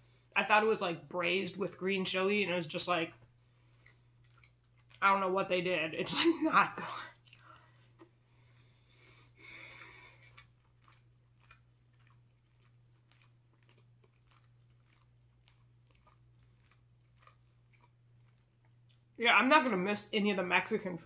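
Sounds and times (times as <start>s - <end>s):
low steady hum: 0.0s - 21.0s
faint chewing: 3.0s - 5.0s, 6.1s - 19.2s
breathy sound: 7.4s - 10.4s.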